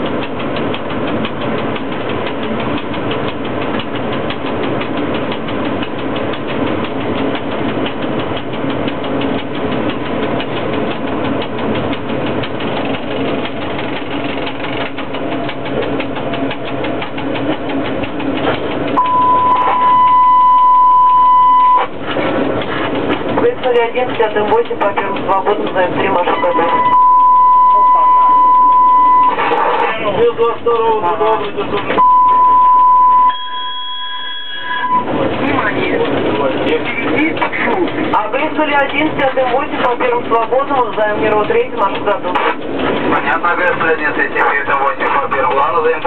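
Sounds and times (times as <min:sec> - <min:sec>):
locomotive cab running noise: 0:00.0 - 0:46.0
loud whistle tone: 0:19.0 - 0:21.9, 0:32.0 - 0:35.1.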